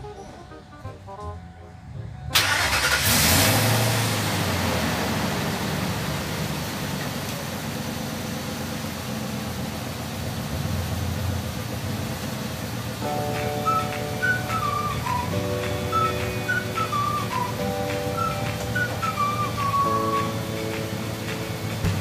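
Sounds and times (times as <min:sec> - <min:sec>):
car engine idling: 0:01.9 - 0:15.2, 0:18.7 - 0:22.0.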